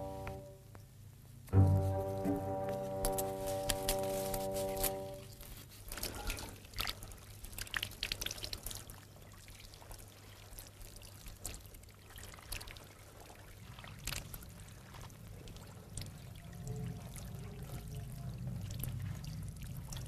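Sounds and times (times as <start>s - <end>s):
water trickling from a jug: 4.4s - 20.0s.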